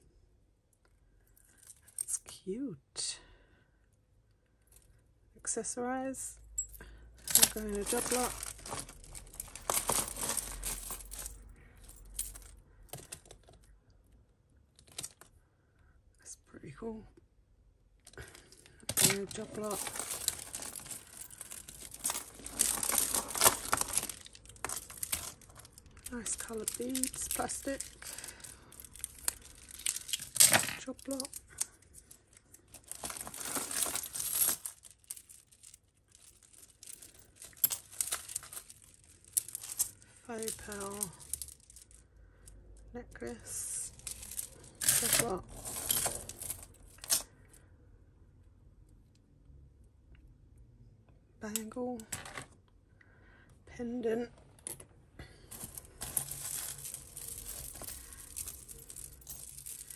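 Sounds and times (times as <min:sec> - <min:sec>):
beads and chain clicking: 0:06.4 - 0:13.7, 0:18.0 - 0:42.6, 0:43.5 - 0:47.3, 0:55.5 - 0:59.9
jewellery clinking and rattling: 0:06.4 - 0:13.7, 0:18.0 - 0:47.6, 0:54.6 - 0:59.9.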